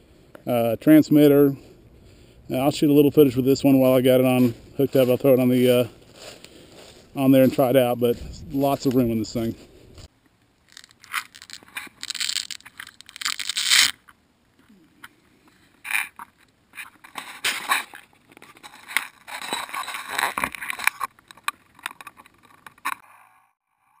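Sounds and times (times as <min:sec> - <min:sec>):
handling scrapes and rustles: 0:03.2 - 0:10.1, 0:10.7 - 0:13.9, 0:14.6 - 0:23.0.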